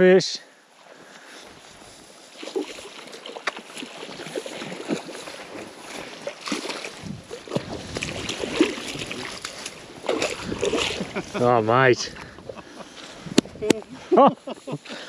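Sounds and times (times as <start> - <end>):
footsteps through grass: 0.8 - 11.6.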